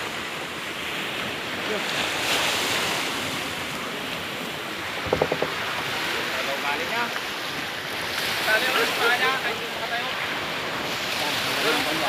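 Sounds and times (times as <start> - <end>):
surf washing on shore: 0.0 - 12.0
wind buffeting microphone: 4.6 - 6.4.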